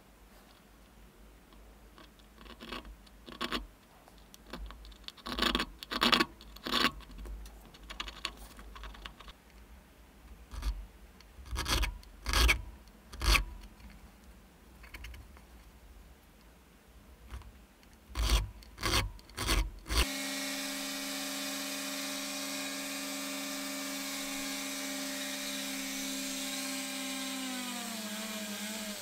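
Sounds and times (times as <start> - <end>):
file scraping on brass: 18.2 - 26.6.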